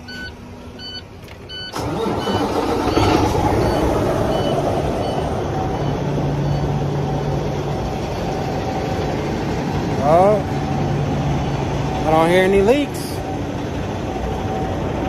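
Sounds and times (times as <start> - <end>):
dashboard warning beeps: 0.0 - 6.9
diesel engine starting and idling: 0.0 - 15.0.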